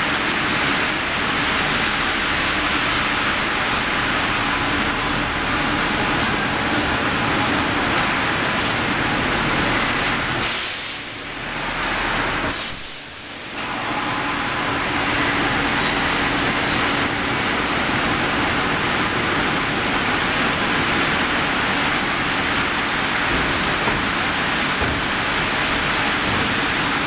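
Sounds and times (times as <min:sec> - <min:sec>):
water spray hissing on hot steel: 0:08.3 - 0:13.6
sharp hiss: 0:10.4 - 0:11.1, 0:12.5 - 0:13.5.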